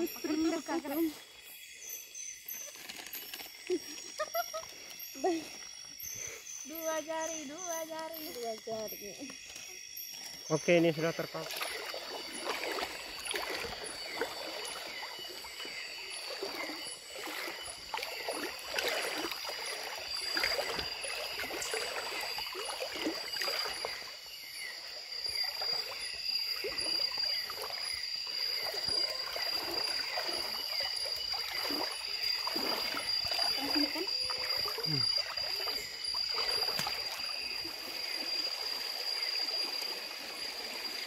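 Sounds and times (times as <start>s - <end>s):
feet splashing through water: 11.3s - 38.2s.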